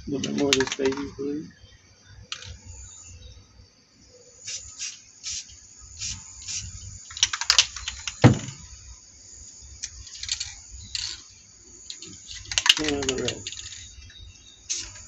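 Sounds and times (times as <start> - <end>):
cans clicking and knocking: 0.2 - 1.1
spray can hissing: 4.4 - 8.2, 14.7 - 15.0.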